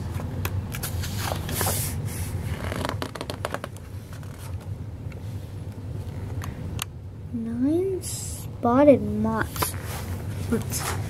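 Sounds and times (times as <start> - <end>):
low steady hum: 0.0 - 11.0
book pages rustling: 2.5 - 4.7.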